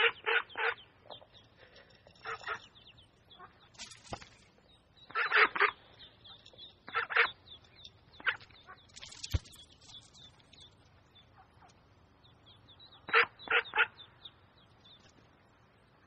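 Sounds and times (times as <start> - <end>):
ducks quacking: 0.0 - 1.2, 2.2 - 3.7, 5.0 - 9.0, 13.0 - 14.1.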